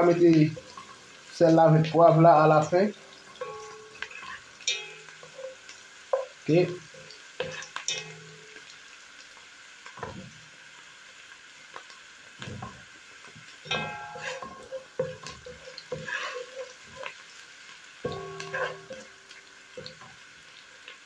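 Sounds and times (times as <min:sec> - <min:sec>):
onions sizzling in oil: 0:00.0 - 0:21.0
wooden spatula scraping pan: 0:03.5 - 0:05.6, 0:13.7 - 0:17.2, 0:18.1 - 0:19.1.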